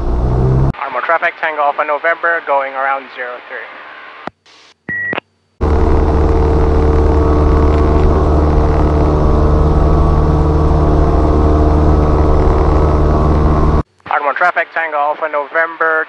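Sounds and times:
propeller aircraft engine drone: 0:00.0 - 0:00.7, 0:05.6 - 0:13.8.

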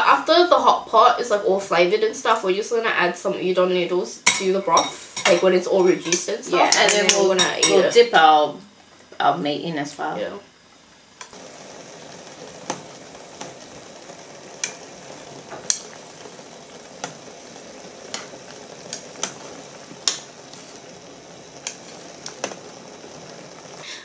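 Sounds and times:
sharp pops and ticks: 0:11.2 - 0:11.4, 0:12.5 - 0:23.4
broth bubbling: 0:11.3 - 0:24.0.

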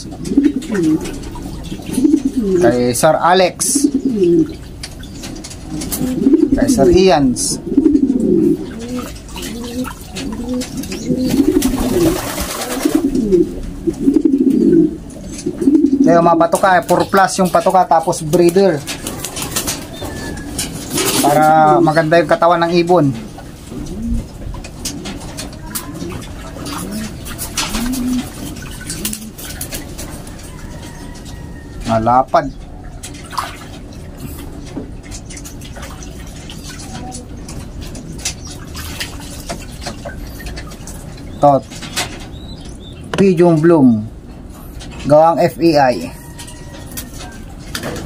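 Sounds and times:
pigeons cooing: 0:00.0 - 0:48.0
water splashing in metal basin: 0:07.6 - 0:14.3, 0:24.6 - 0:31.8, 0:32.8 - 0:42.2.

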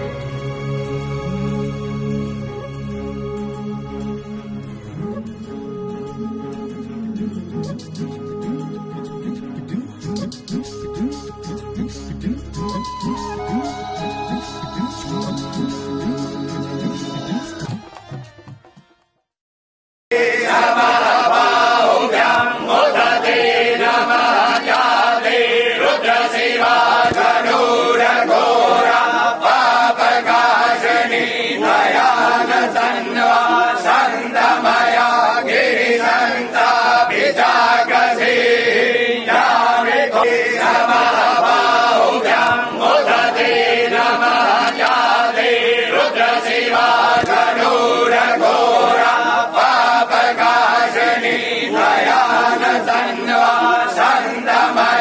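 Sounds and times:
group chanting in unison: 0:20.1 - 0:55.0.

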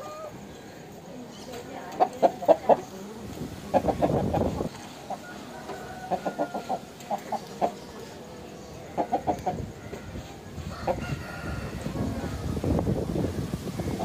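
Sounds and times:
rooster clucking: 0:01.9 - 0:03.0, 0:03.6 - 0:07.9, 0:08.8 - 0:14.0.

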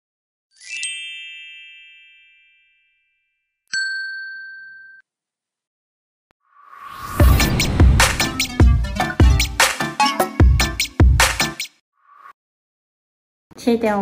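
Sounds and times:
bell-like ding: 0:01.2 - 0:05.0.

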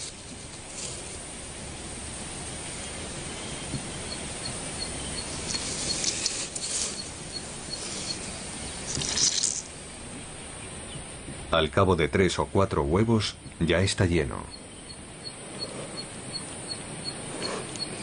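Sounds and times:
rustling: 0:00.0 - 0:10.4
steady hiss: 0:00.0 - 0:18.0.

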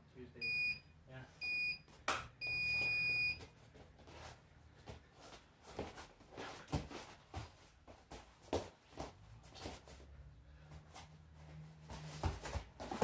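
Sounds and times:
long electronic timer beep: 0:00.4 - 0:01.8, 0:02.4 - 0:03.4
feet scuffling on mat: 0:02.8 - 0:13.0.

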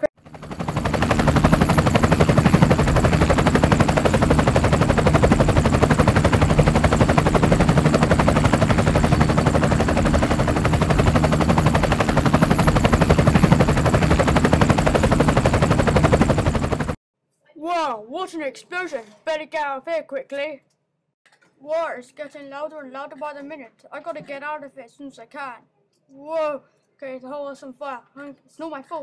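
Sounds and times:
helicopter rotor blades chopping: 0:00.0 - 0:17.0.

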